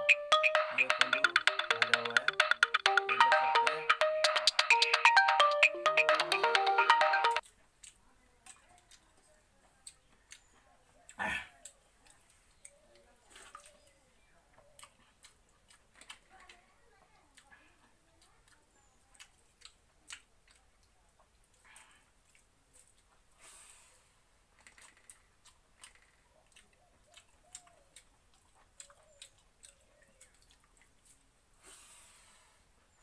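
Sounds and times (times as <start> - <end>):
mouth clicks and chewing smacks: 7.4 - 13.7, 14.6 - 16.6, 17.2 - 23.3, 24.6 - 31.3.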